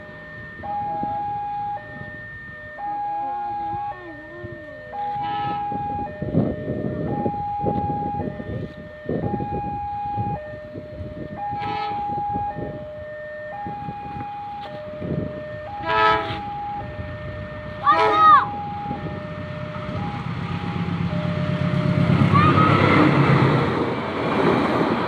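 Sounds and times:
level crossing alarm tones: 0.0s - 23.0s.

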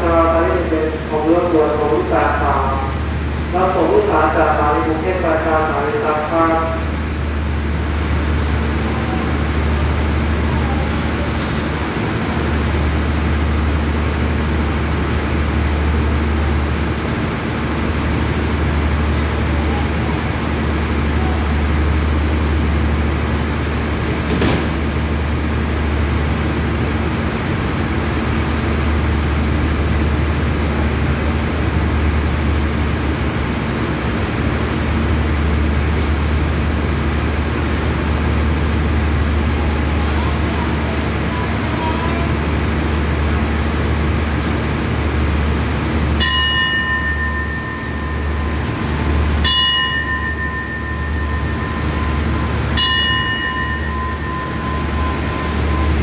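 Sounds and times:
train diesel engines idling: 0.0s - 56.0s.

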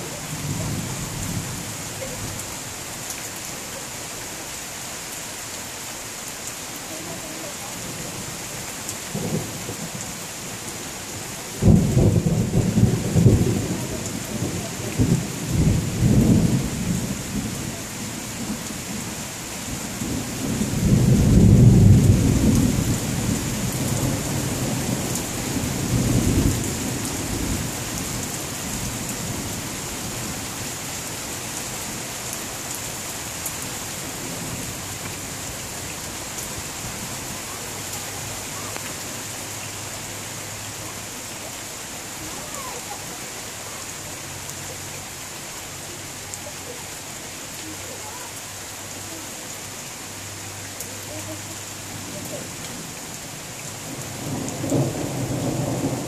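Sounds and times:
steady rain: 0.0s - 56.0s
thunder rumbling: 11.5s - 17.7s, 19.7s - 30.4s, 53.8s - 56.0s.

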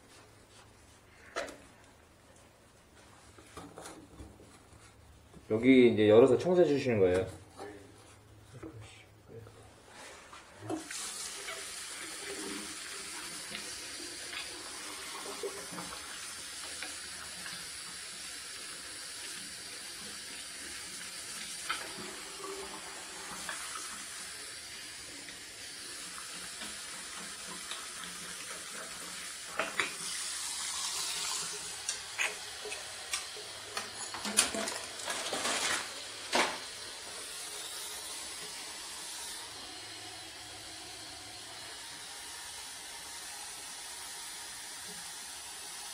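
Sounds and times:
tap water running into washbasin: 10.7s - 45.9s.

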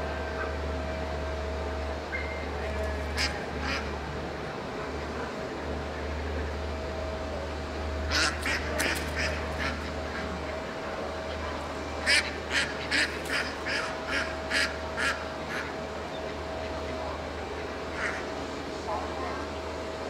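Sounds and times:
steady low hum: 0.0s - 20.0s
ducks quacking: 3.1s - 4.1s, 8.1s - 19.4s.

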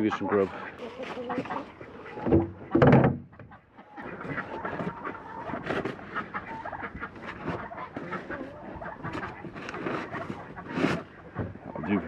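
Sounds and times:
chickens clucking: 0.0s - 12.0s.

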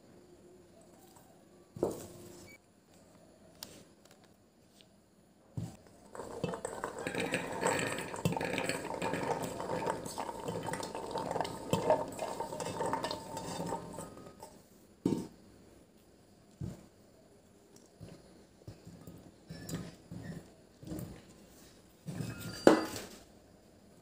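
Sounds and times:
chickpeas rattling into metal pot: 6.1s - 14.4s
bowl clinking on pot rim: 22.1s - 23.1s.

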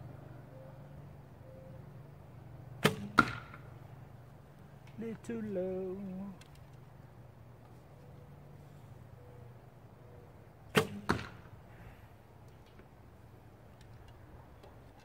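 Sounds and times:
arrow striking target: 2.8s - 3.7s, 10.7s - 11.5s.

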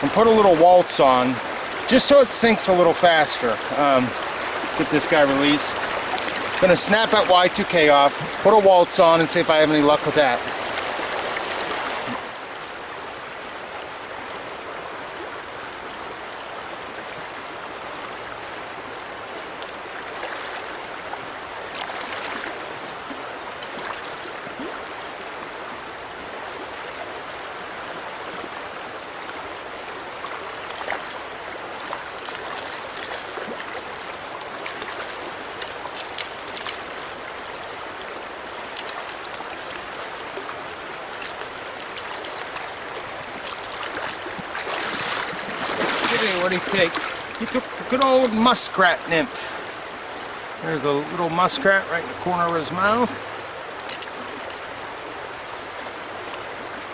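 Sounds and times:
river running over rocks: 0.0s - 56.9s
fish splashing at the surface: 21.7s - 24.9s, 30.2s - 37.2s, 38.6s - 48.0s.

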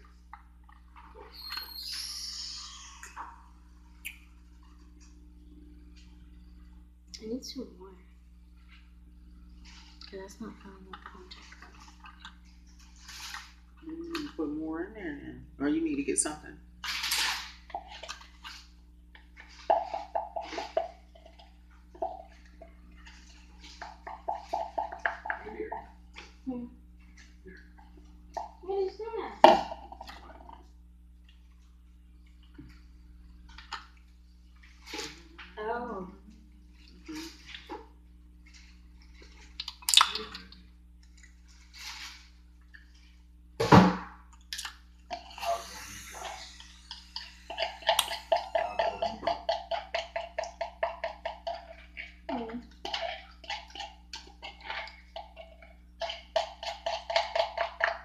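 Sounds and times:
steady low hum: 0.0s - 58.0s
liquid glugging: 9.6s - 14.3s, 17.4s - 26.4s, 39.2s - 40.7s, 44.4s - 58.0s.

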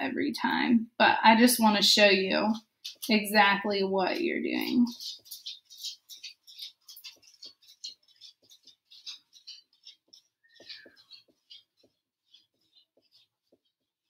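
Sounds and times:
pen scratching on paper: 4.6s - 14.0s.

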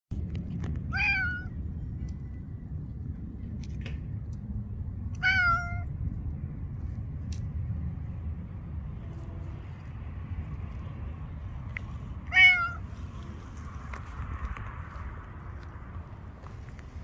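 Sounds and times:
low background rumble: 0.1s - 17.0s
cat meowing: 0.9s - 1.6s, 5.2s - 5.9s, 12.3s - 12.9s.

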